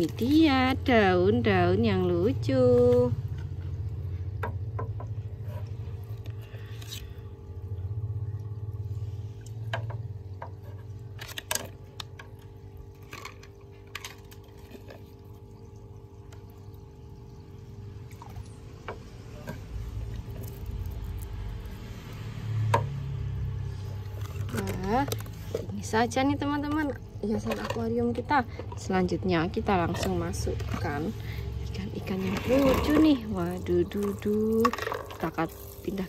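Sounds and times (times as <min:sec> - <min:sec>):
steady low hum: 0:00.0 - 0:36.0
water sloshing: 0:09.4 - 0:21.7, 0:23.5 - 0:36.0.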